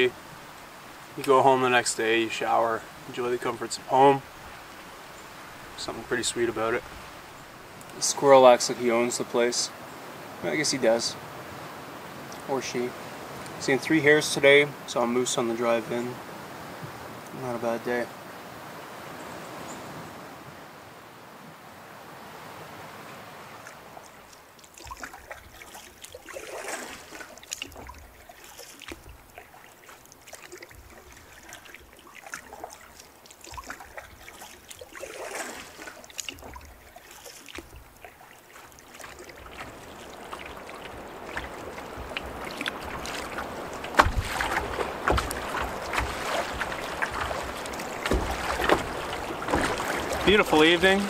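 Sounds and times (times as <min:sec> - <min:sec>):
paddle strokes: 0:23.6 - 0:51.0
water slapping against hull: 0:23.6 - 0:51.0.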